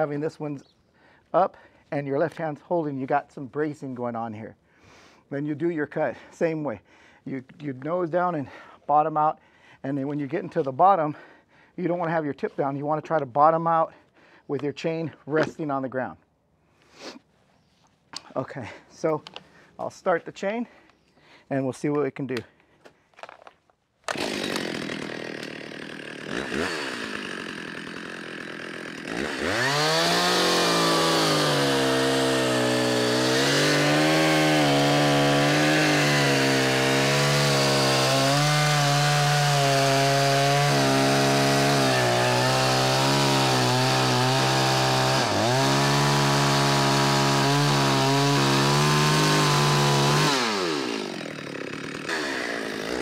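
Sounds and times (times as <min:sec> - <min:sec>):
chainsaw revving and cutting log: 0:24.1 - 0:53.0.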